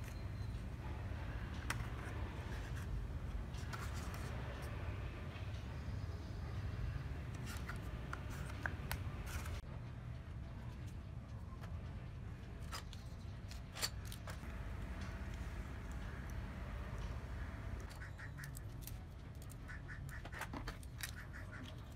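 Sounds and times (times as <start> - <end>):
low steady rumble: 14.4 - 18.0.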